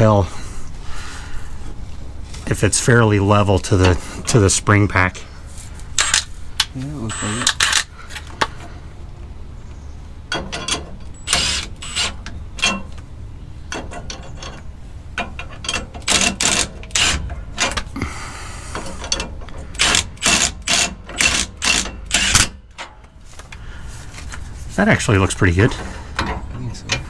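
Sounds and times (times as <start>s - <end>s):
impact wrench bursts: 6.0s - 6.3s, 7.1s - 7.9s, 10.6s - 12.8s, 15.8s - 17.9s, 18.6s - 22.8s.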